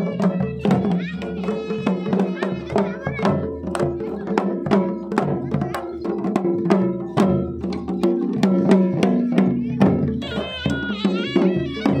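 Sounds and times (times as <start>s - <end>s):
drums beaten in quick rhythm: 0.0s - 12.0s
held wind-instrument notes: 10.2s - 12.0s.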